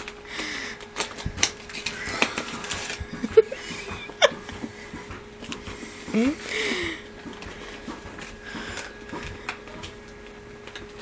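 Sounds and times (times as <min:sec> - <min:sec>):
pages clicking and creaking: 0:00.0 - 0:03.9
paper crinkling and rustling: 0:00.0 - 0:05.8.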